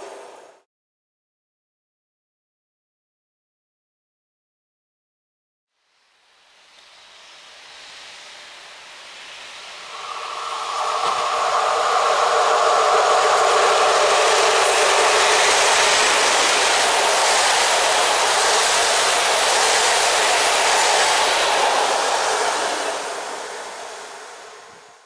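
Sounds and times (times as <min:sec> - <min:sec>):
train wheels rolling on rails: 0:09.4 - 0:25.0.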